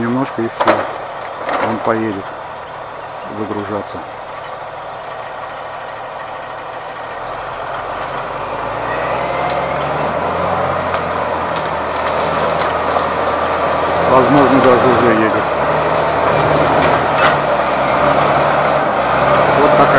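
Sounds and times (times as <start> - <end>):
diesel engine running: 0.0 - 19.9
rising whine: 7.3 - 12.7
branches snapping: 9.4 - 19.3.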